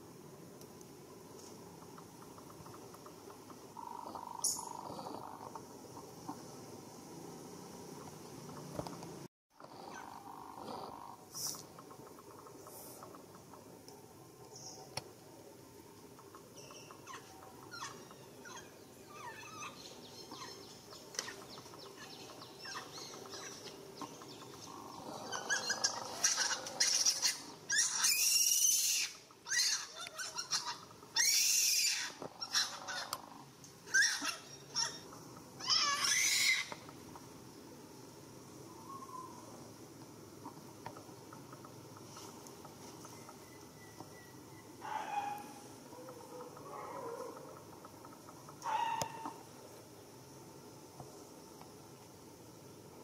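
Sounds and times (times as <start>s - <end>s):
macaques squealing: 17.0s - 19.8s, 24.8s - 33.3s, 33.9s - 36.8s.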